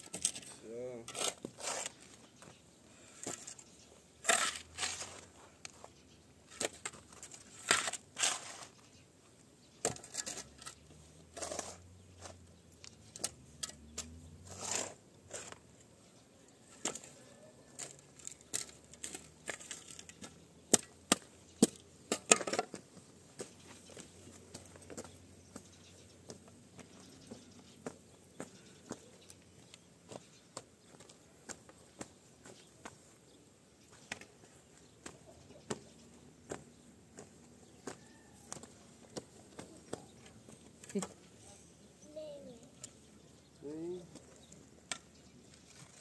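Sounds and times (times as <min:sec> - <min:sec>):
spade digging stony soil: 0:00.0 - 0:02.4, 0:03.1 - 0:05.7, 0:06.4 - 0:09.0, 0:09.8 - 0:15.7, 0:16.7 - 0:22.8.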